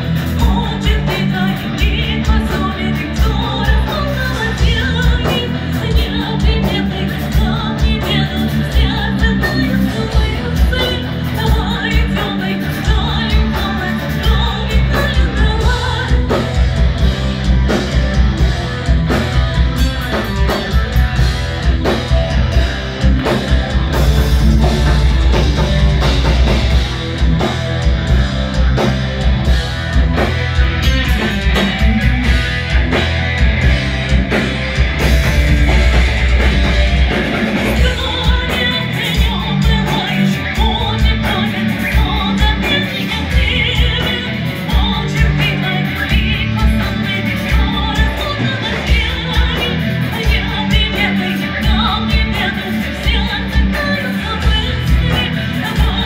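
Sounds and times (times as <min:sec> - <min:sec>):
metal band playing: 0:00.0 - 0:56.0
woman singing: 0:00.3 - 0:16.8, 0:37.6 - 0:56.0.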